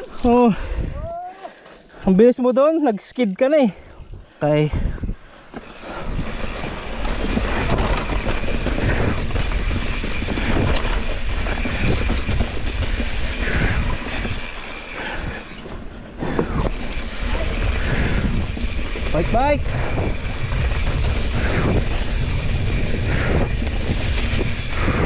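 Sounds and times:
bike chain and frame rattling: 0.0 - 25.0
wind rumble on microphone: 3.9 - 5.3, 5.9 - 25.0
bike tyres skidding over dirt: 5.1 - 25.0.

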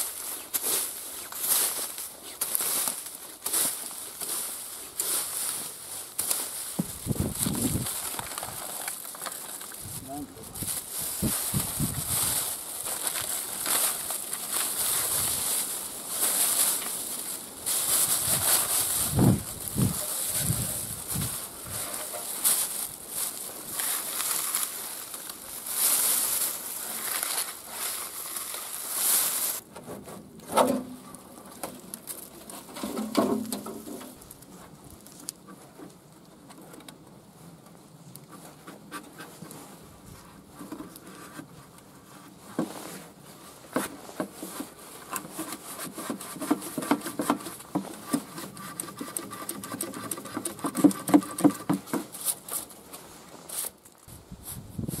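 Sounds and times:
dry leaves rustling: 0.0 - 29.7, 30.9 - 35.4
plastic bag rustling: 0.0 - 29.7.

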